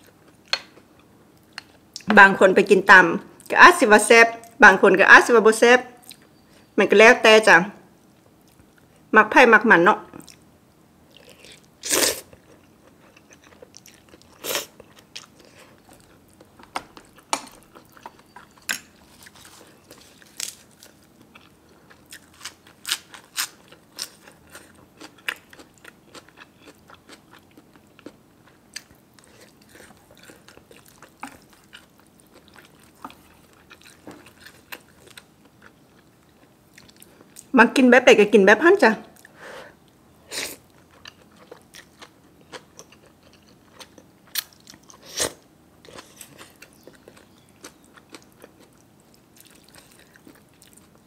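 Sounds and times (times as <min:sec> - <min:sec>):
person chewing crunchy food: 0:11.1 - 0:37.5, 0:39.2 - 0:51.0.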